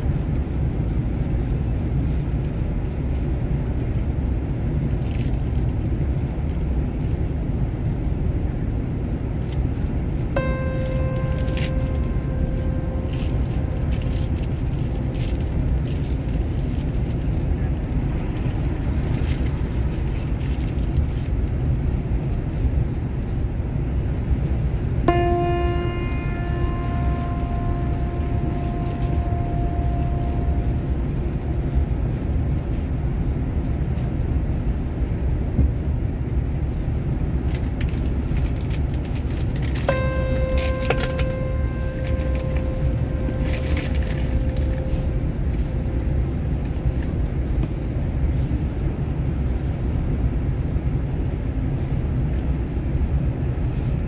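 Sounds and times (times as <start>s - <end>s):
bus engine rumble from inside: 0.0s - 54.0s
bell-like chime: 10.4s - 16.3s, 25.1s - 32.0s, 39.9s - 47.3s.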